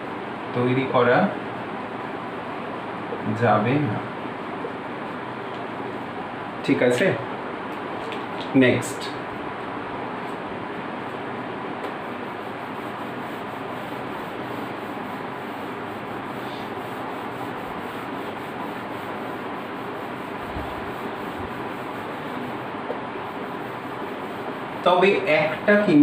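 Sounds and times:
eraser rubbing on whiteboard: 12.1 - 24.9.

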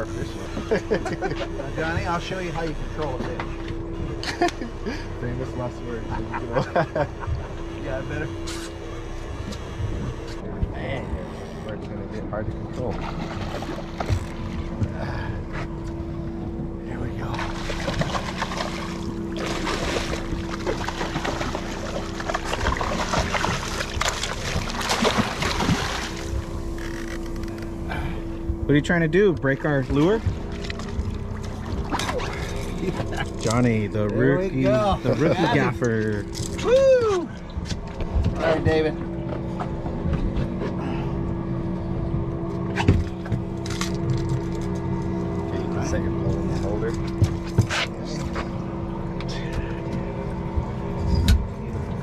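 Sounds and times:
boat engine hum: 0.0 - 52.0
fish splashing at surface: 17.4 - 26.3.

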